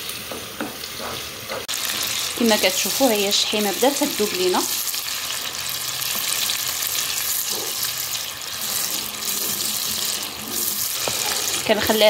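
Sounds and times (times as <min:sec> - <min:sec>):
fat sizzling in a frying pan: 0:00.0 - 0:12.0
wooden spoon stirring: 0:08.6 - 0:12.0.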